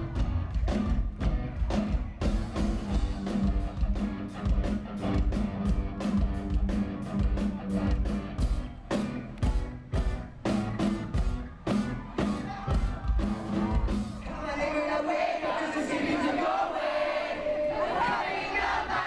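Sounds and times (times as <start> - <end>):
rock band playing live: 0.0 - 14.3
crowd shouting: 9.5 - 19.0.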